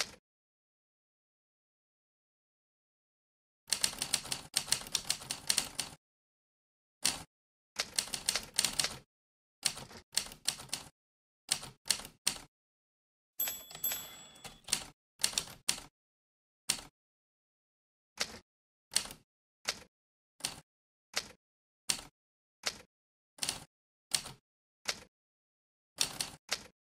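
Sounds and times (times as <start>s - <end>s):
typewriter bell ding: 13.4s - 14.9s
typewriter keystrokes: 13.4s - 15.9s.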